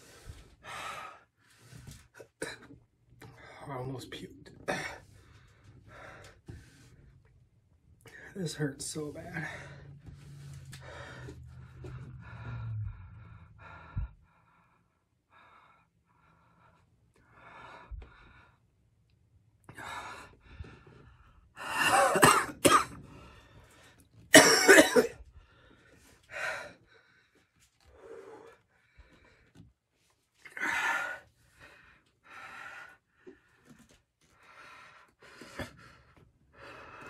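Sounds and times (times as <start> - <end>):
heavy labored breathing: 4.7 - 7.3, 9.2 - 18.8, 19.7 - 21.8, 25.2 - 29.7, 30.4 - 37.0
man coughing hard: 21.7 - 23.0, 24.3 - 25.2.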